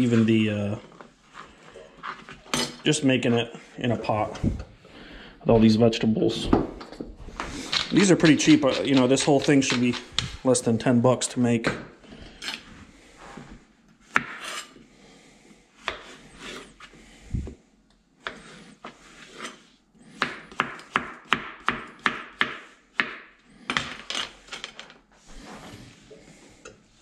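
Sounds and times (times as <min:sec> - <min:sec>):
knife chopping on cutting board: 0:20.2 - 0:23.2.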